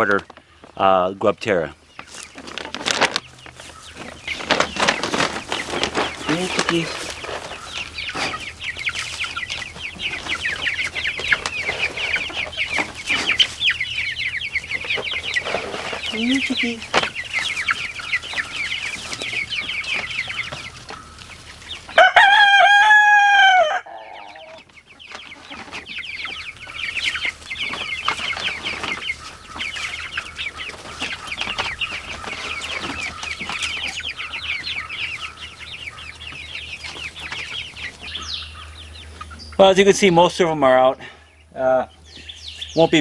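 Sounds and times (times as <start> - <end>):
chicks cheeping: 0.0 - 43.0
rooster crow: 22.0 - 24.6.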